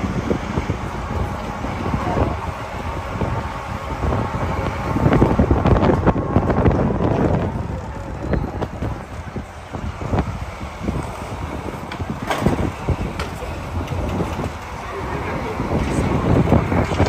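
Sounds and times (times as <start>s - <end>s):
city traffic: 0.0s - 17.0s
wind buffeting microphone: 0.0s - 17.0s
knocks and clatters: 11.0s - 14.8s, 15.8s - 17.0s.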